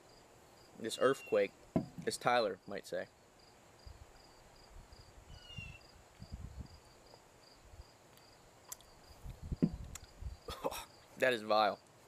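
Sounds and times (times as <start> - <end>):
cricket chirping: 2.6 - 12.0.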